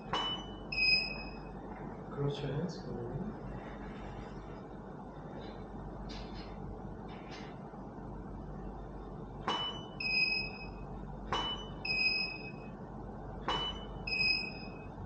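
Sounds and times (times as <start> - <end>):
short electronic beep: 0.0 - 1.5, 13.5 - 15.0.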